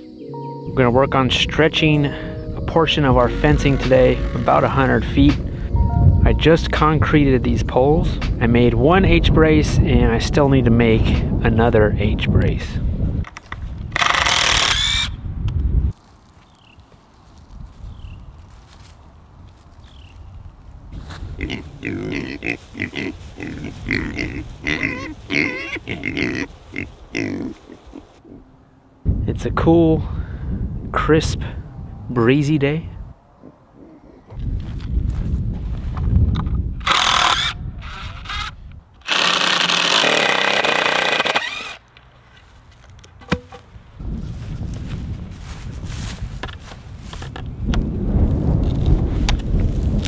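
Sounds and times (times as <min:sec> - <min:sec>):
cordless drill driving screw: 0:14.0 - 0:15.1, 0:36.8 - 0:41.8
pigs grunting: 0:21.3 - 0:28.5
wood block dropping on ground: 0:43.2 - 0:43.7.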